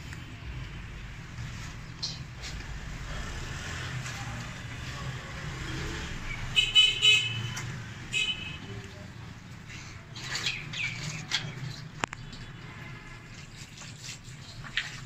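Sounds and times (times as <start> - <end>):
town traffic: 0.0 - 14.6
vehicle horn toots: 6.6 - 8.7.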